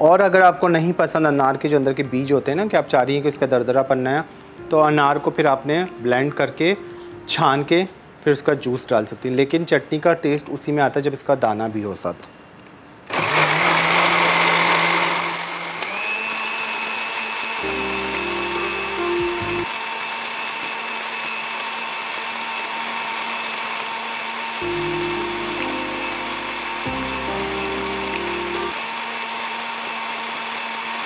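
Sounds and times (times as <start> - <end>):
blender running: 13.1 - 31.0.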